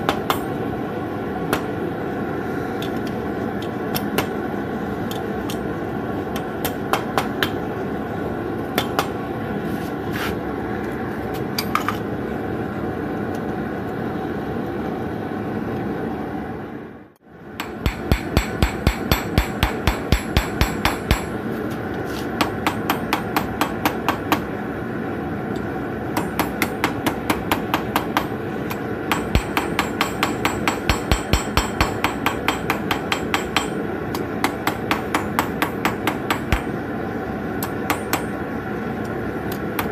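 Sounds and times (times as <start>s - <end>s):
hammer ringing on steel anvil: 17.6s - 21.4s, 29.1s - 33.8s.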